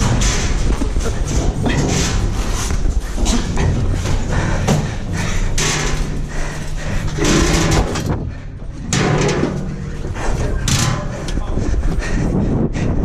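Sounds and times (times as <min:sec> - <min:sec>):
wire-mesh gate rattling: 0:00.0 - 0:04.1, 0:05.4 - 0:08.2
hands and feet thumping metal: 0:00.0 - 0:12.7.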